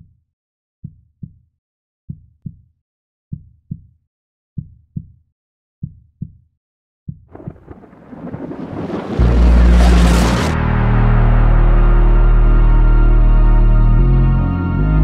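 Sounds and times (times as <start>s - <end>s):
rumbling noise: 7.3s - 10.7s.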